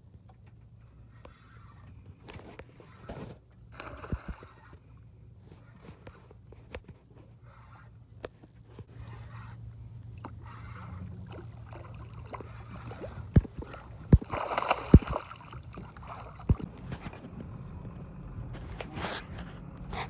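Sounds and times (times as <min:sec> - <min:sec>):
steady low hum: 0:00.0 - 0:20.0
fish splashing at the surface: 0:11.2 - 0:16.6
sharp thumps: 0:13.1 - 0:17.2.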